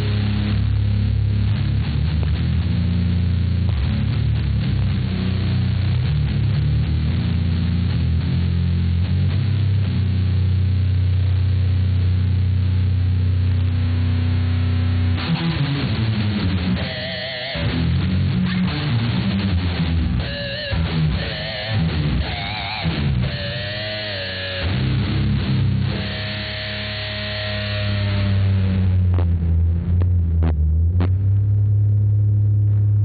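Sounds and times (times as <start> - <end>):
electric guitar solo: 15.1 - 29.2.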